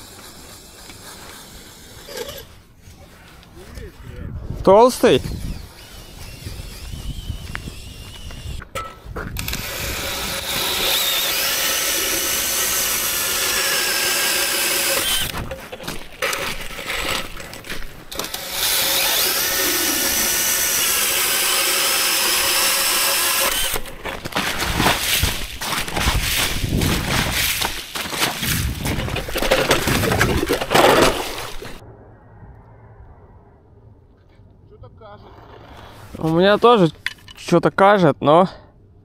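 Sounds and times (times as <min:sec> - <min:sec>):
ice auger boring: 0:00.0 - 0:02.6, 0:05.2 - 0:08.6, 0:09.4 - 0:31.8.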